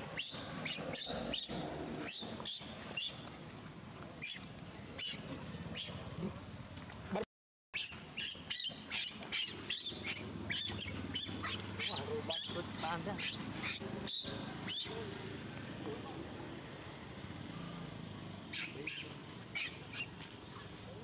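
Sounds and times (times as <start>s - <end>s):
monkeys squeaking and chirping: 0.0s - 3.2s, 4.2s - 6.0s, 7.8s - 15.1s, 18.5s - 20.8s.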